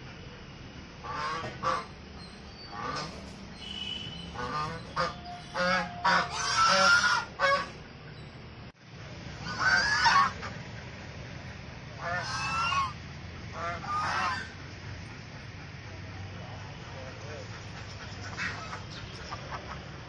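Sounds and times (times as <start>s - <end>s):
geese honking: 1.0s - 2.0s, 2.7s - 7.9s, 9.3s - 10.6s, 12.0s - 20.0s.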